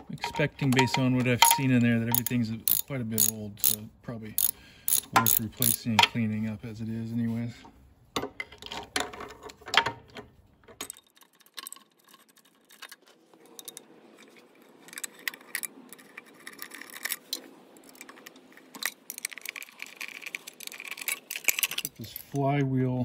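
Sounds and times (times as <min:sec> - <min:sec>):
metal parts rattling: 0:00.0 - 0:03.8, 0:04.4 - 0:05.9, 0:10.6 - 0:22.4
sharp tool clicks: 0:01.4 - 0:03.8, 0:04.4 - 0:05.8.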